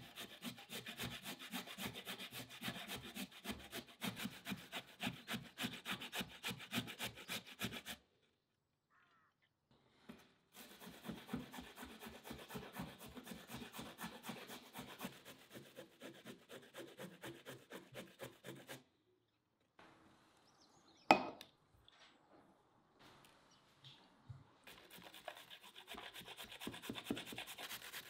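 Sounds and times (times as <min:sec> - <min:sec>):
grating on metal grater: 0:00.0 - 0:08.0, 0:10.6 - 0:18.8, 0:24.7 - 0:28.0
sharp knock: 0:21.1 - 0:21.4.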